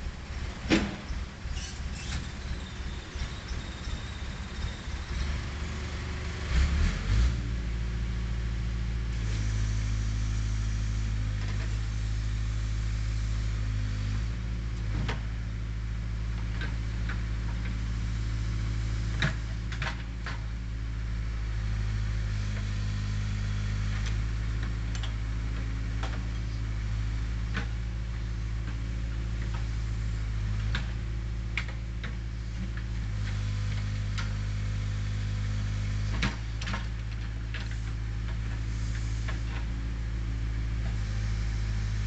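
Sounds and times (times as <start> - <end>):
backhoe diesel engine running: 0.0 - 42.0.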